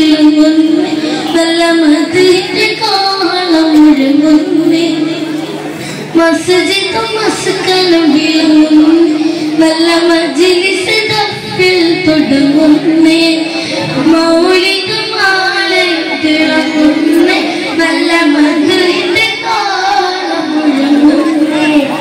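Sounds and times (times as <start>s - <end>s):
boys singing together: 11.2s - 22.0s.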